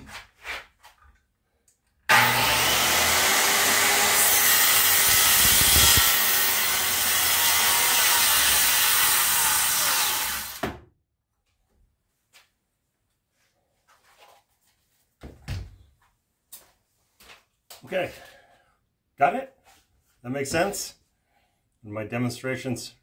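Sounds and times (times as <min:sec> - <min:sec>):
circular saw cutting wood: 0:02.1 - 0:10.6.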